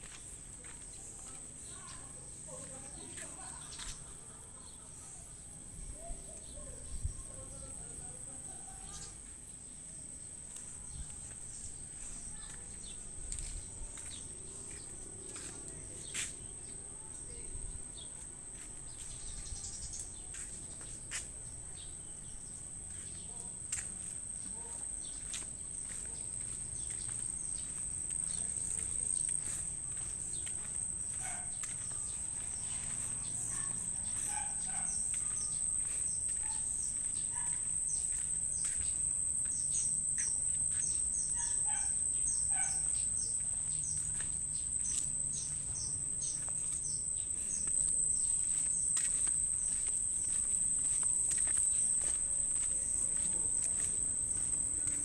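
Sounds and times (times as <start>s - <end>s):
birds chirping: 10.5s - 55.0s
high insect drone: 22.4s - 55.0s.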